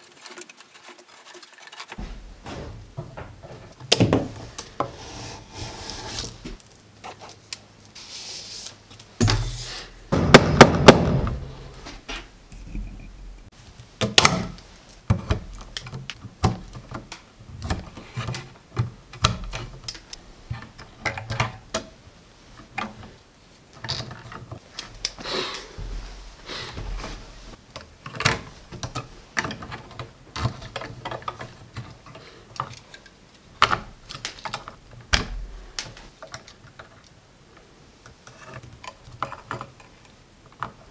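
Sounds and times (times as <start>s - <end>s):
cable clicks and knocks: 14.0s - 22.0s.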